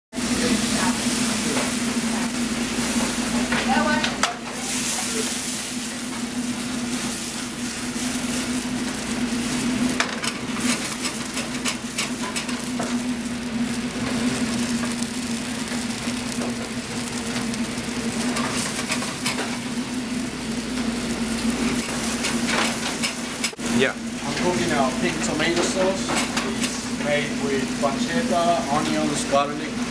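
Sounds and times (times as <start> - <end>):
onions sizzling in a pan: 0.1 - 29.9
pan and utensils clinking: 9.9 - 13.0, 18.3 - 19.7.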